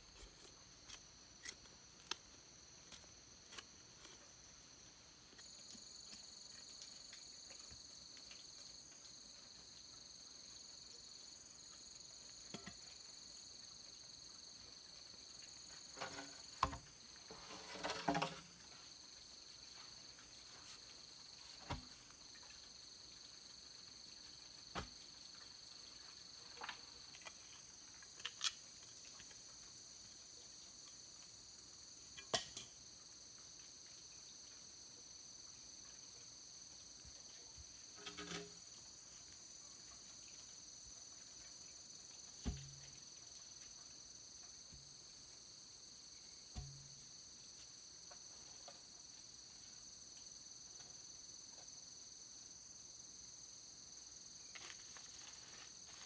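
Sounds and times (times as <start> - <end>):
insects chirring: 0.0 - 56.0
digging knocks and scrapes: 15.8 - 19.0, 37.9 - 38.9, 42.4 - 43.0
bamboo poles knocking: 16.0 - 16.9, 46.5 - 46.9.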